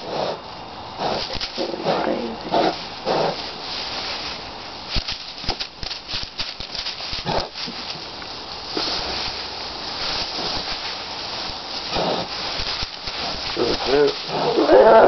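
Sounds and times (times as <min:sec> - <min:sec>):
pig grunts: 0:00.0 - 0:00.4, 0:01.0 - 0:03.5, 0:07.2 - 0:07.6, 0:11.8 - 0:12.4, 0:13.2 - 0:15.0
straw rustling and crackling: 0:00.0 - 0:15.0.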